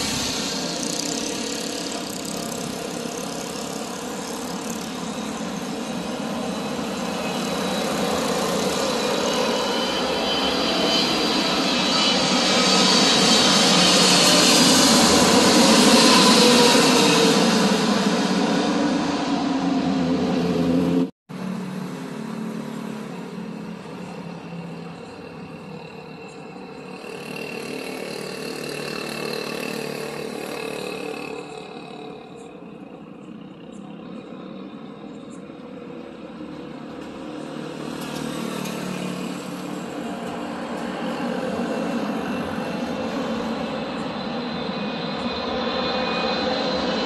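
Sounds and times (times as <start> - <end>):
motorbikes passing: 0.0 - 9.2, 20.5 - 34.7, 36.0 - 43.2
jet plane overhead: 0.0 - 47.0
road traffic rushing: 0.0 - 47.0.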